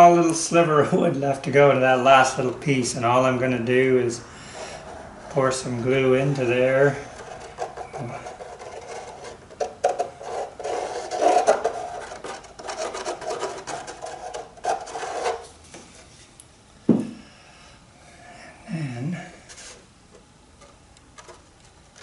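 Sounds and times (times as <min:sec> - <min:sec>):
plastic nozzle scraping wood: 0:06.8 - 0:15.5.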